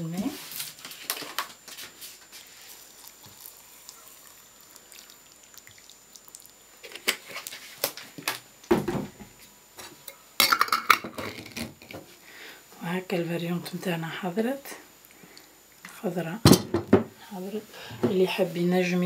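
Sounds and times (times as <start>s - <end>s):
water trickling into jar: 2.6s - 7.4s
glass and plastic clattering: 10.4s - 12.0s.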